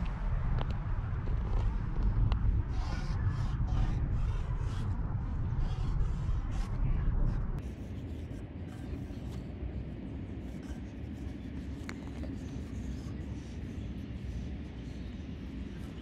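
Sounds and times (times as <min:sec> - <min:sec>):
steady low rumble: 0:00.0 - 0:16.0
marker scratching on plastic: 0:05.6 - 0:07.0, 0:07.6 - 0:16.0.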